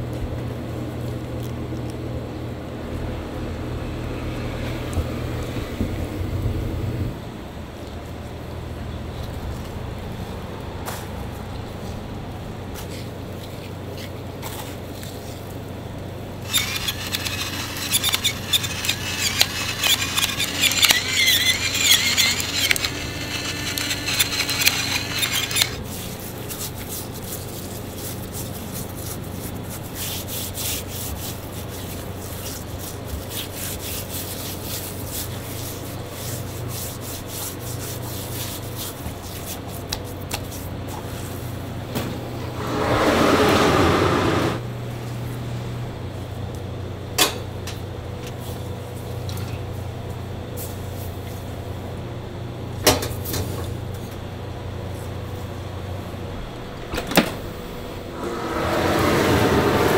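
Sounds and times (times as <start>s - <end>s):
steady low hum: 16.1s - 33.6s
metal oven racks scraping and squealing: 16.5s - 25.8s, 42.4s - 44.6s
squeeze bottle squirting: 16.5s - 25.8s.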